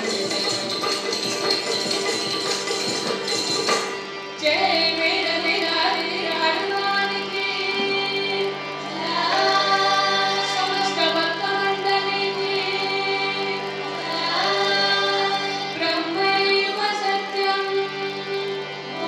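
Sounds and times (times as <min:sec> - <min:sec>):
jingling percussion rhythm: 0:00.0 - 0:04.3
children singing in chorus: 0:07.0 - 0:19.0.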